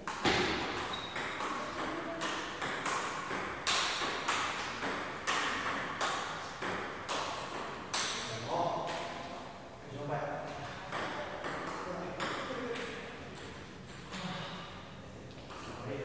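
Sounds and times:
ball bouncing on table: 0.0 - 9.1, 10.6 - 14.3
ping pong ball hitting paddles: 0.0 - 9.3, 10.6 - 14.4.

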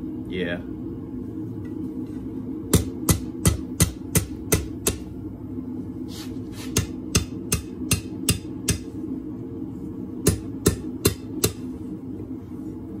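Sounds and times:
steady low hum: 0.0 - 13.0
hammer striking hot steel on anvil: 2.7 - 5.1, 6.7 - 9.0, 10.2 - 11.7.

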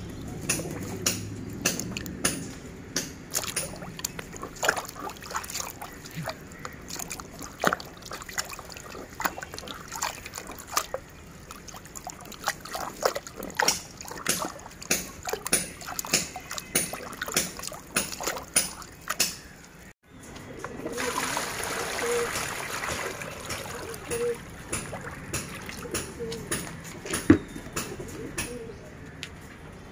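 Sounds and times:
hand splashing water in a tub: 3.2 - 19.8, 20.9 - 26.5
water pouring into a tray: 20.9 - 25.9.

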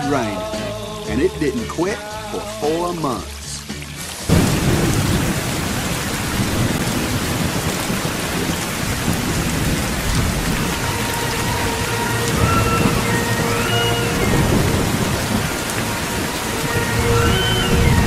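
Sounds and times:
heavy rain pouring: 0.0 - 18.0
thunder rumbling: 4.3 - 18.0.

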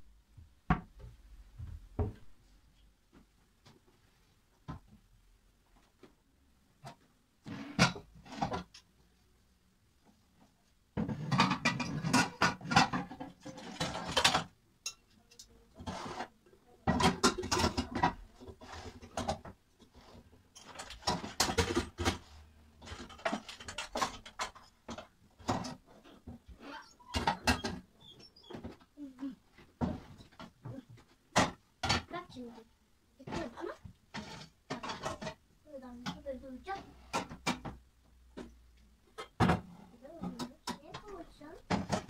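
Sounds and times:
metal pots and lids clattering: 11.0 - 15.1, 16.8 - 19.5, 20.5 - 22.2, 27.1 - 27.8, 34.2 - 35.4.

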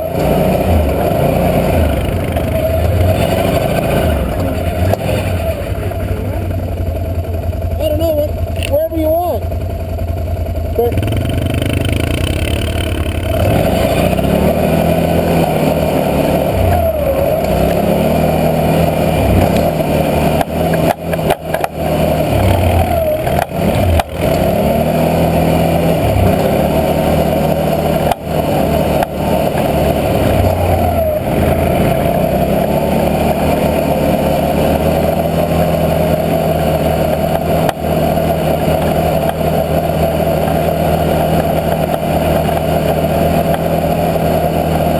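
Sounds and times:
atv engine revving: 0.0 - 44.9
knocks over rough trail: 9.5 - 44.9.

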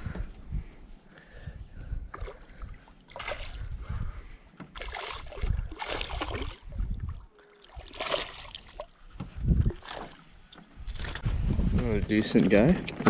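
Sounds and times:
fish splashing at surface: 4.8 - 6.6, 7.6 - 8.9.

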